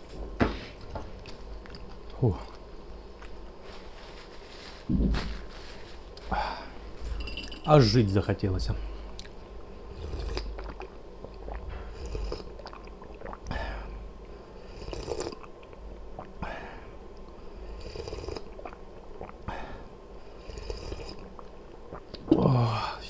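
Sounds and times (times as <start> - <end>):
soft noisy mouth sound: 0.6 - 3.8, 9.0 - 23.0
breathing: 6.2 - 6.9, 8.8 - 9.2, 13.5 - 15.0, 16.4 - 17.9, 19.5 - 20.6
person chewing: 10.0 - 13.6, 18.0 - 19.5.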